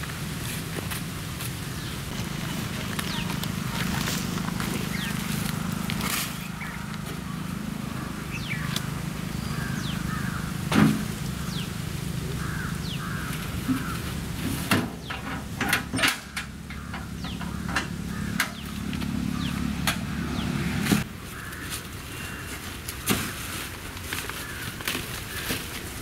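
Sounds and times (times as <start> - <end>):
birds chirping: 0.8 - 23.1
knocks of pots and wheelbarrow: 10.6 - 11.2, 13.3 - 19.2.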